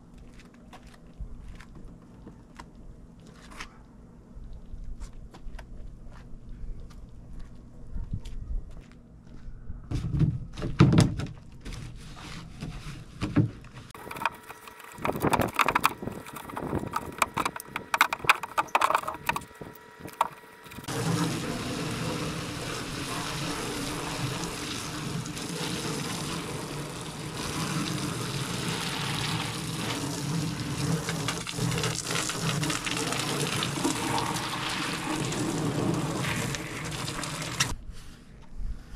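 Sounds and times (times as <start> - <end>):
brush scraping plastic kayak hull: 11.6 - 19.4
hose spraying water onto hull: 14.0 - 37.7.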